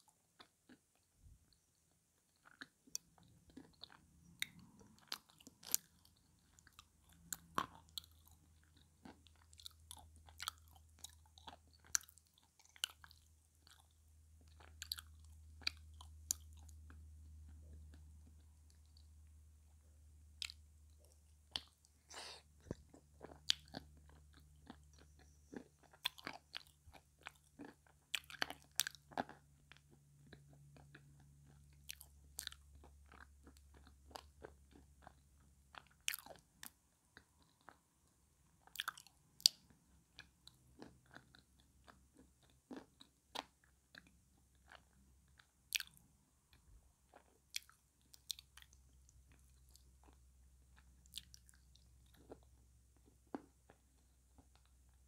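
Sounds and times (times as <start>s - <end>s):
chewing and crunching clay: 0.0s - 55.0s.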